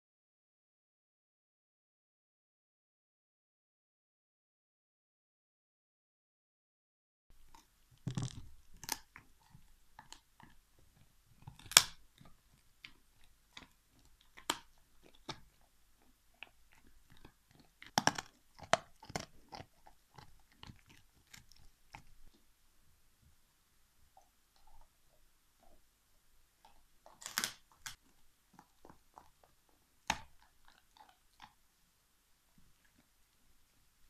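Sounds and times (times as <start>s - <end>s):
dog chewing a bone: 7.4s - 22.4s, 24.1s - 25.8s, 26.6s - 31.6s.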